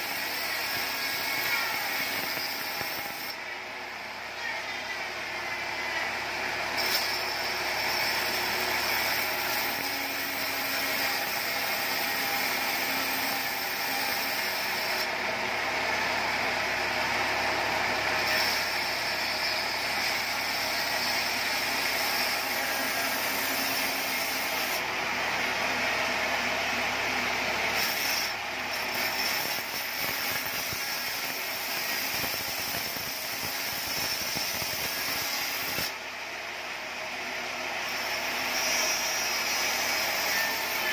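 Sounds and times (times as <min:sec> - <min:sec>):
band saw cutting wood: 0:00.0 - 0:03.4, 0:06.6 - 0:16.4, 0:17.3 - 0:36.0, 0:37.4 - 0:40.9.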